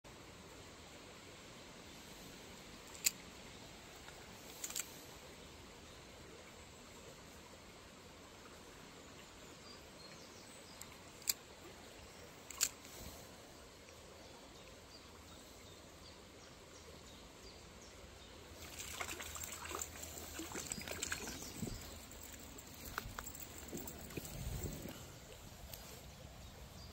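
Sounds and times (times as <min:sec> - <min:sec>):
creek water trickling: 0:00.1 - 0:26.9
fish splashing at surface: 0:18.6 - 0:22.6.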